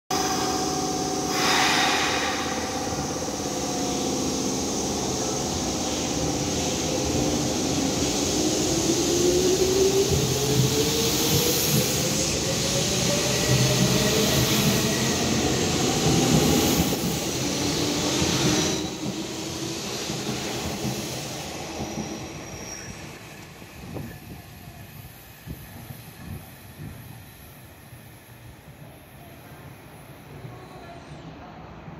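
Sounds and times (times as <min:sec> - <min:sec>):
air hiss: 0:01.2 - 0:06.9.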